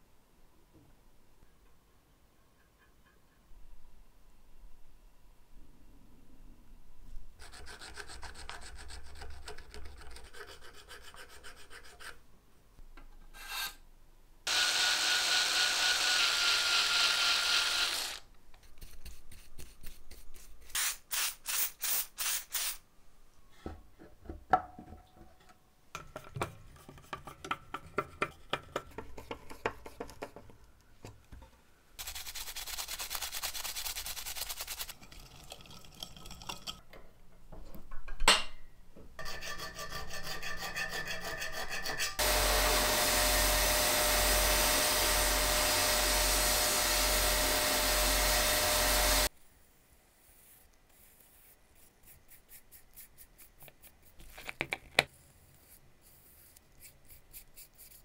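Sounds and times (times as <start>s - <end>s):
filing metal parts: 13.2s - 13.8s, 39.2s - 49.3s
loud steady hiss: 42.2s - 49.3s.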